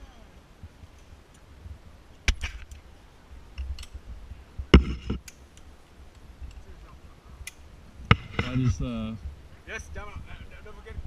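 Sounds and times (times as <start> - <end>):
metal carabiner clicks: 3.6 - 4.0, 5.2 - 5.7.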